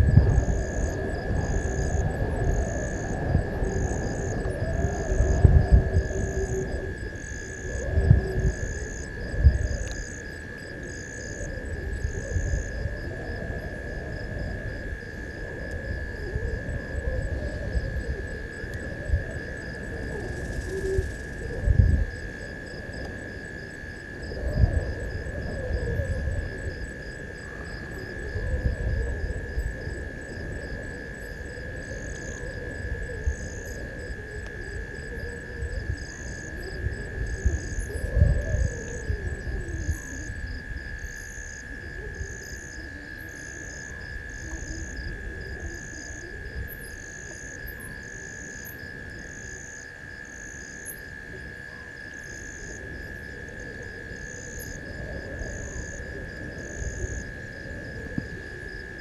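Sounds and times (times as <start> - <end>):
cricket trill: 0.0 - 59.0
pulsing insect calls: 0.0 - 59.0.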